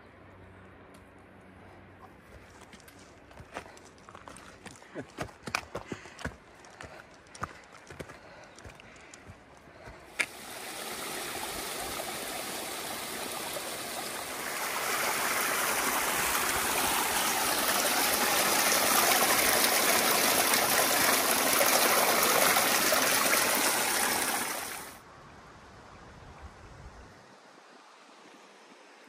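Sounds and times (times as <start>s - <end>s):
mountain stream rushing: 10.1s - 25.0s.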